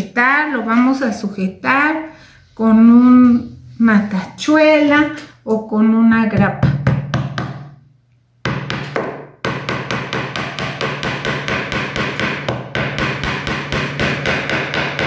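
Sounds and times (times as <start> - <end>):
hammer tapping nail into wood: 8.5 - 15.0.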